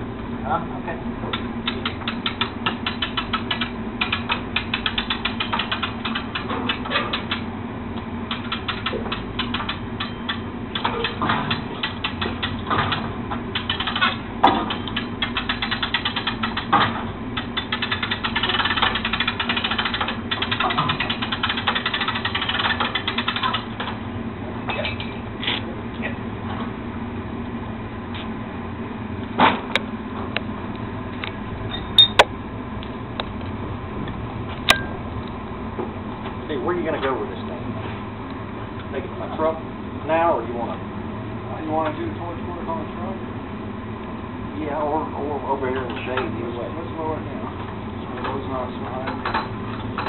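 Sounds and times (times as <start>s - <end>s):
winch ratcheting clicks: 1.3s - 7.5s, 8.3s - 16.8s, 17.4s - 24.0s.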